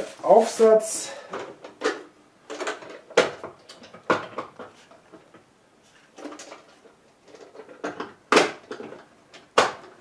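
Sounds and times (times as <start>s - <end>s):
plastic parts clicking: 1.3s - 5.4s, 6.2s - 10.0s.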